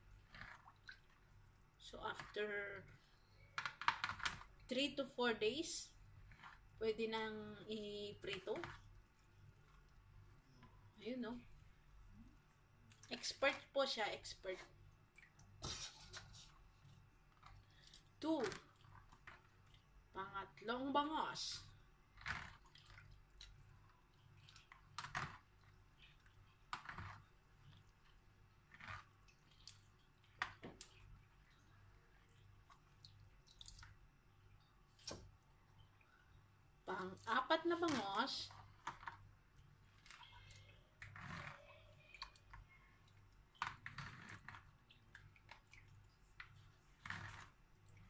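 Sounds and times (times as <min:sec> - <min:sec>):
wet squishes of fish: 0:00.0 - 0:03.0, 0:21.6 - 0:37.3, 0:38.5 - 0:48.0
low steady hum: 0:00.0 - 0:48.0
wet scrape: 0:15.6 - 0:16.6.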